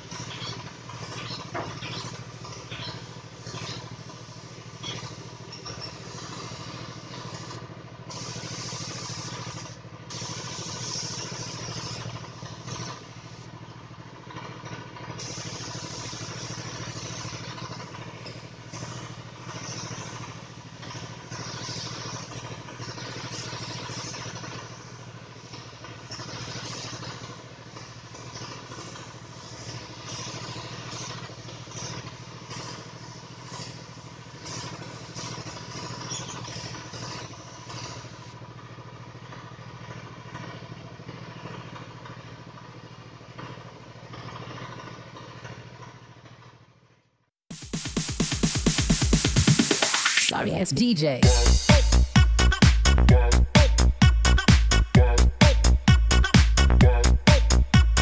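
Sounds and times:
spray gun hissing: 0.0s - 13.5s, 15.1s - 38.3s, 47.5s - 50.4s
steady low hum: 0.0s - 45.0s, 50.3s - 58.0s.

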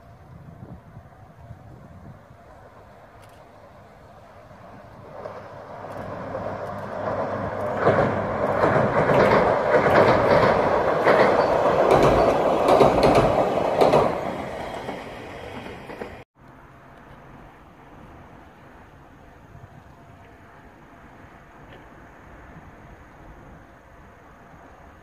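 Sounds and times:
electric train crossing steel bridge: 0.0s - 25.0s
wheels clacking over rail joints: 2.4s - 16.2s.

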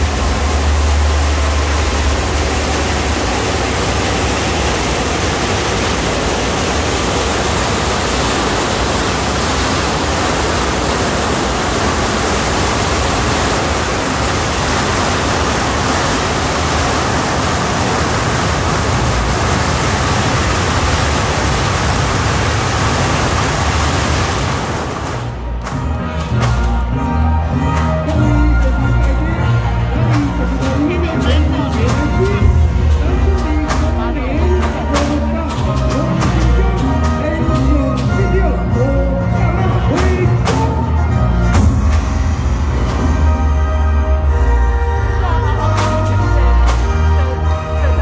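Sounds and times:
firecrackers crackling: 0.0s - 26.9s.

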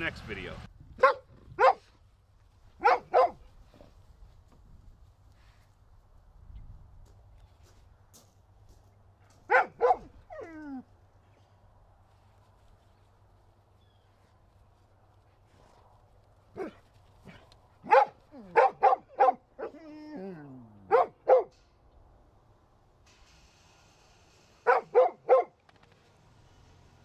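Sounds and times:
dog barking: 1.0s - 1.9s, 2.8s - 3.4s, 9.5s - 10.2s, 16.5s - 19.8s, 20.9s - 21.5s, 24.6s - 25.6s.

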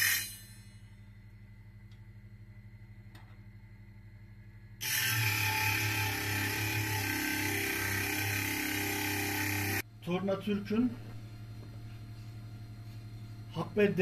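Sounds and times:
faint low hum: 0.3s - 4.8s
lathe motor whirring: 4.8s - 9.8s.

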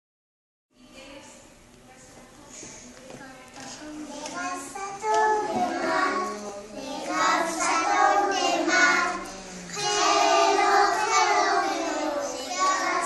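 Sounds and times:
children singing together: 4.0s - 13.0s.

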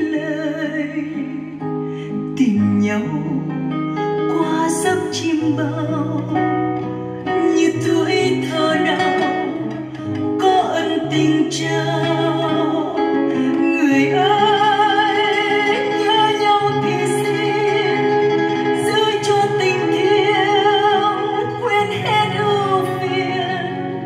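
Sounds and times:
instrumental accompaniment: 6.2s - 24.0s
singer with strong vibrato: 7.3s - 24.0s.

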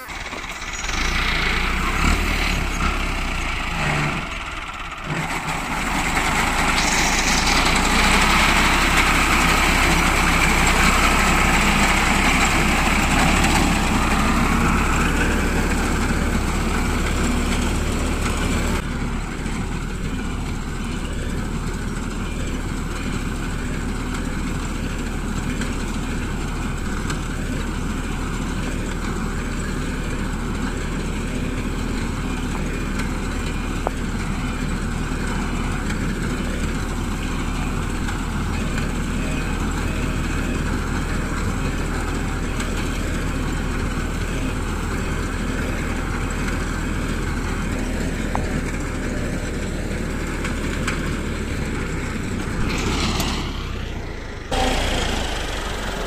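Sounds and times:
diesel tractor engine running: 0.0s - 56.0s
reaper cutting wheat: 5.1s - 17.4s.

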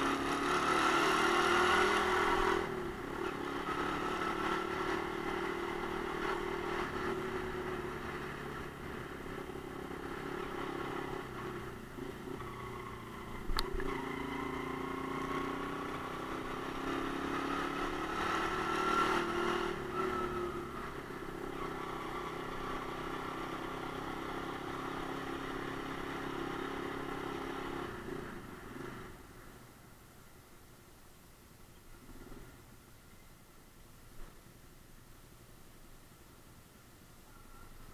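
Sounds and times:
sharp click: 13.5s - 13.9s.

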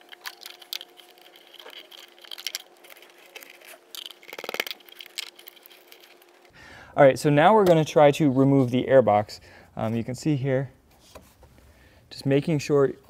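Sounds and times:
plastic parts clicking and scraping: 0.0s - 6.5s.

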